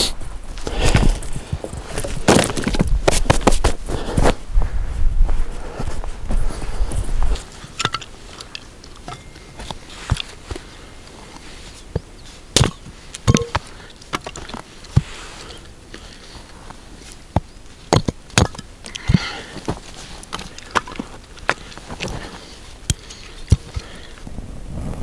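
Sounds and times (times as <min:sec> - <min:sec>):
hatchet splitting wood: 0:12.6 - 0:15.1, 0:17.4 - 0:19.4.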